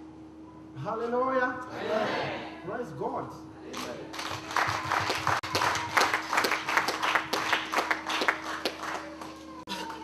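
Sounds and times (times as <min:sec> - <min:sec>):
hands clapping in rhythm: 0:03.8 - 0:10.0.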